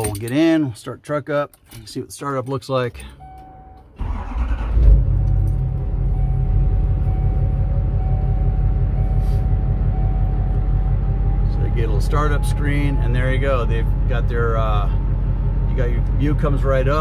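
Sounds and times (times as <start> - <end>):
diesel engine cranking: 2.8 - 17.0
diesel engine idling: 4.0 - 17.0.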